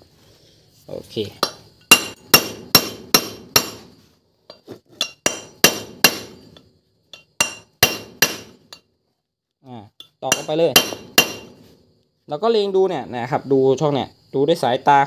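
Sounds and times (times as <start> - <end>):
hammer striking metal: 1.4 - 3.9, 5.0 - 8.8, 10.3 - 11.6.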